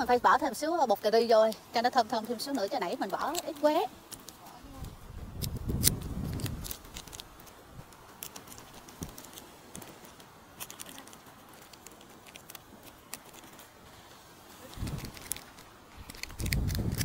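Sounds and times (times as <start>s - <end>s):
wind rumbling on microphone: 4.6s - 7.9s, 14.6s - 17.0s.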